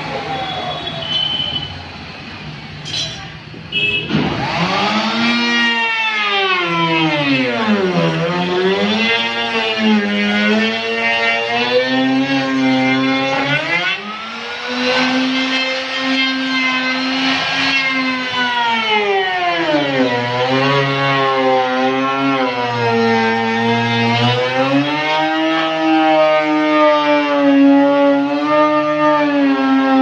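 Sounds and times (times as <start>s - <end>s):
electric router whining: 4.3s - 26.2s.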